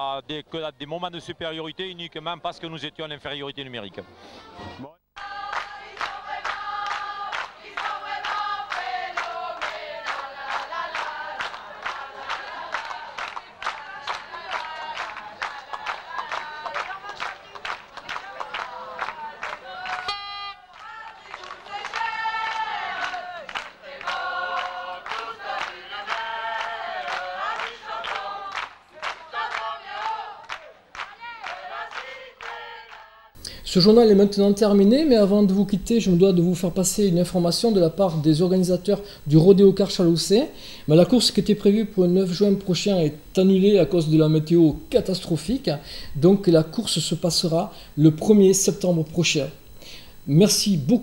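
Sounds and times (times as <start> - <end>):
steady hand claps: 5.2 - 20.1, 20.7 - 33.1
supporters singing in chorus: 5.2 - 33.4.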